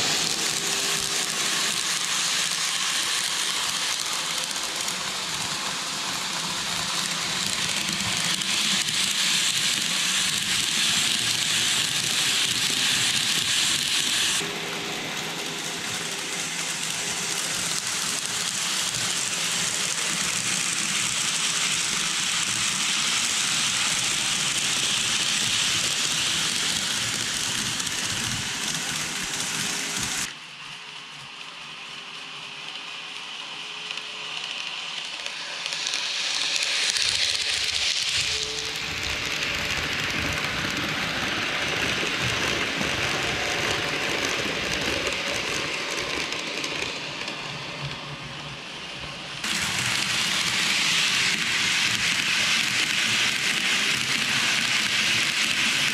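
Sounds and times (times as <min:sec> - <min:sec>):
model train wheels rattling: 0:00.0 - 0:14.4, 0:32.6 - 0:47.4, 0:49.4 - 0:55.9.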